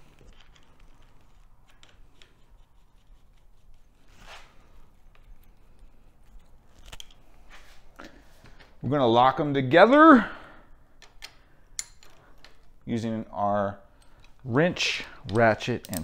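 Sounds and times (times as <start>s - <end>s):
metallic clicks and rubbing: 0.0s - 7.4s, 14.0s - 16.0s.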